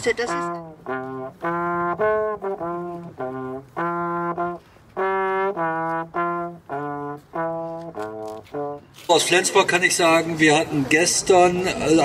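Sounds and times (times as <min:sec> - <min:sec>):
solo trombone melody: 0:00.0 - 0:09.6.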